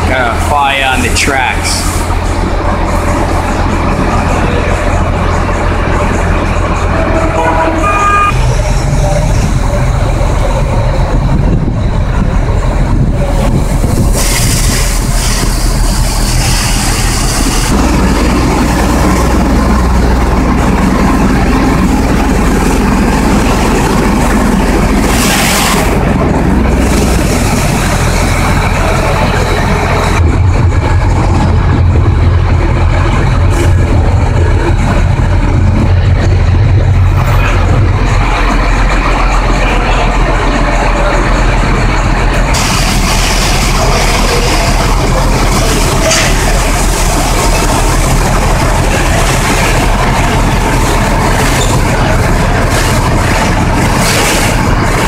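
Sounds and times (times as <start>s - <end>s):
diesel engines running: 0.0s - 55.0s
air hiss: 14.1s - 17.7s.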